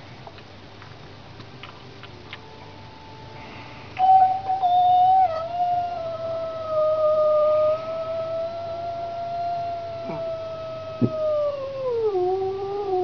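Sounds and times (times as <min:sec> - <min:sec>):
cat yowling: 0:04.0 - 0:13.0.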